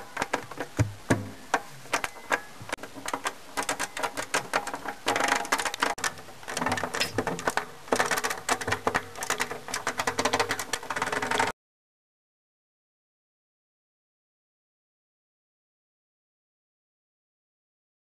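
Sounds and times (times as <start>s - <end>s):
mechanical clicking and rattling: 0.0s - 11.5s.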